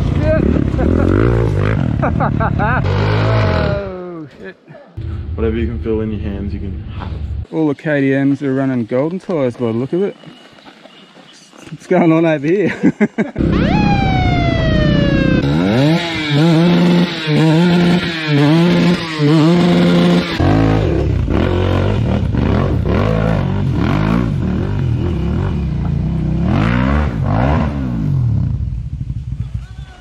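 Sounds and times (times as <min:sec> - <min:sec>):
dirt bike engine revving: 0:00.0 - 0:03.9, 0:13.4 - 0:29.1.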